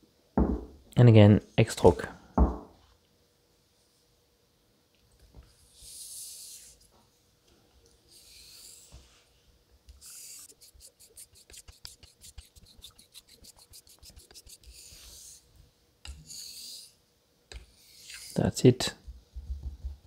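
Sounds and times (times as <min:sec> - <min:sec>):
razor scraping on whetstone: 0:09.9 - 0:15.4, 0:16.0 - 0:17.0, 0:17.6 - 0:18.4.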